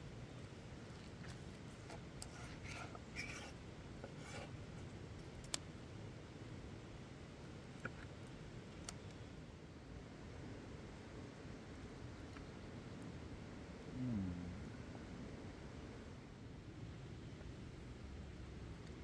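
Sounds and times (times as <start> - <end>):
knife scraping on cutting board: 1.8 - 4.6.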